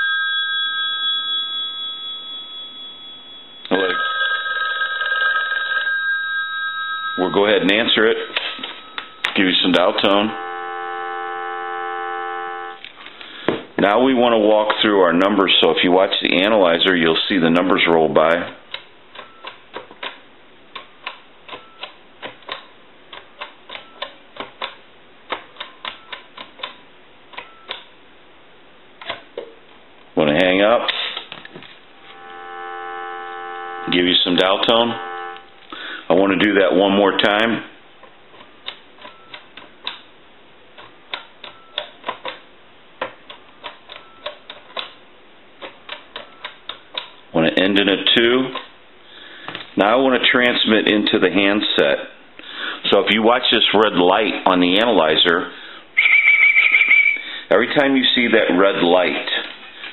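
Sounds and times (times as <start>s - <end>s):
keypad buttons clicking: 18.7s - 27.9s, 38.3s - 40.1s, 40.8s - 45.0s, 45.6s - 47.2s
faint short tone: 32.0s - 34.0s, 34.6s - 35.6s.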